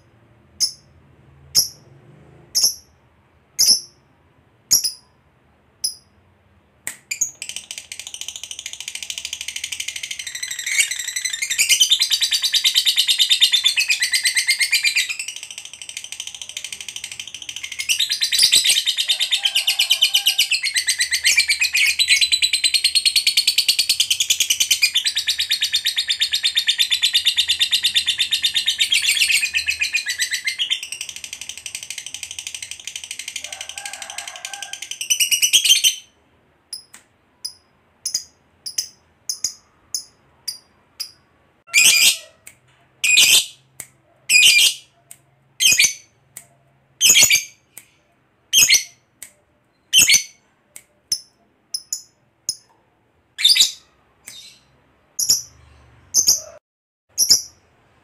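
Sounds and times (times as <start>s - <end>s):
lovebird chattering trill: 37.4s - 42.4s, 57.2s - 57.6s.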